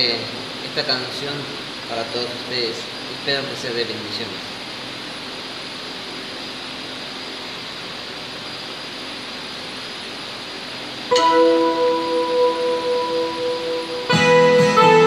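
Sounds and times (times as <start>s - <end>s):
steady hiss: 0.0s - 15.0s
electronic keyboard chord: 11.1s - 15.0s.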